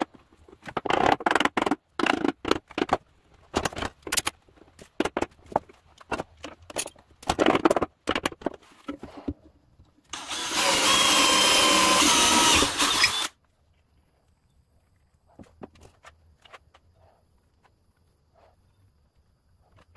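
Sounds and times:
cordless drill boring into wood: 0:10.1 - 0:13.4.

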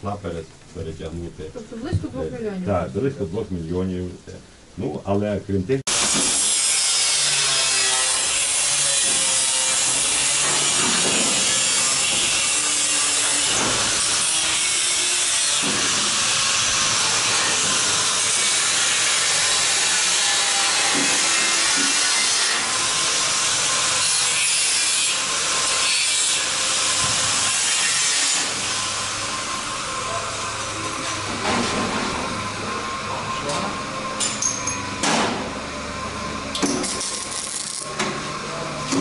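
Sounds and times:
angle grinder grinding metal: 0:05.9 - 0:31.8, 0:36.6 - 0:38.0.

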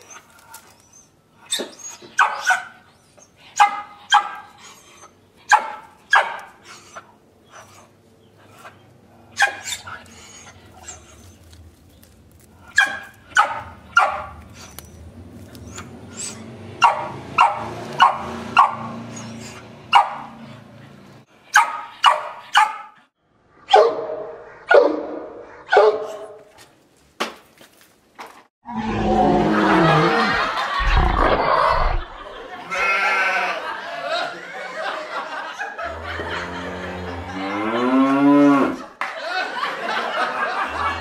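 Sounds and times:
dog barking: 0:02.2 - 0:02.8, 0:03.6 - 0:04.5, 0:05.5 - 0:06.6, 0:09.4 - 0:09.8, 0:12.7 - 0:14.4, 0:16.8 - 0:19.0, 0:19.9 - 0:20.4, 0:21.5 - 0:23.0, 0:23.7 - 0:26.4.

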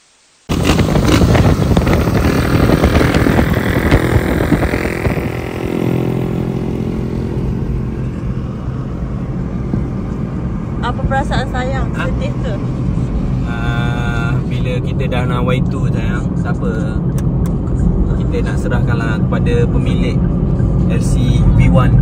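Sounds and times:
small motorcycle engine running: 0:00.5 - 0:08.3.

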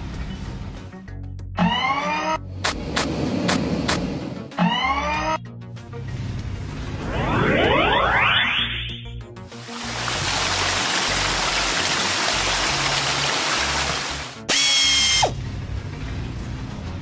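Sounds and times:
background music: 0:00.0 - 0:17.0
high-pitched effect with falling tone: 0:07.0 - 0:09.1.

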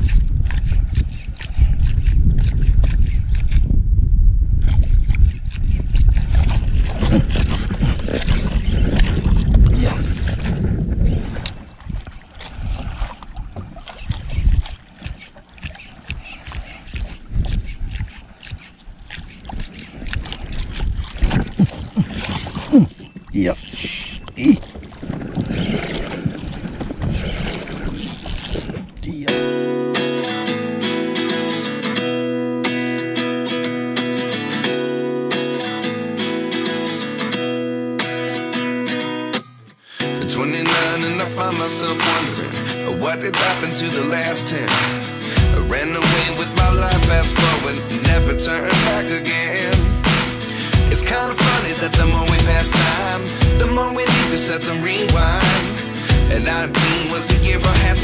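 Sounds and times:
wind buffeting microphone: 0:00.0 - 0:29.3
water noise: 0:00.0 - 0:58.0
fishing reel clicking and rattling: 0:21.8 - 0:24.3, 0:28.0 - 0:28.8
acoustic guitar music: 0:29.3 - 0:58.0.

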